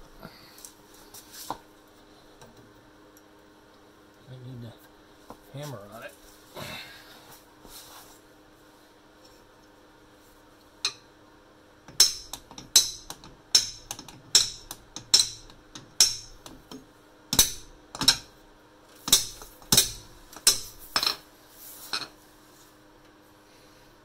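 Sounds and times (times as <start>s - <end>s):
hammer striking steel bar: 11.9s - 16.6s, 17.4s - 18.3s, 19.1s - 21.1s.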